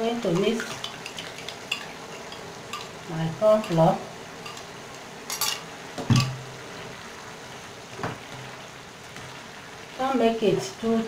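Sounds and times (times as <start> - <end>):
low background noise: 0.0 - 11.0
spoon knocking on frying pan: 0.3 - 4.7, 5.3 - 6.5.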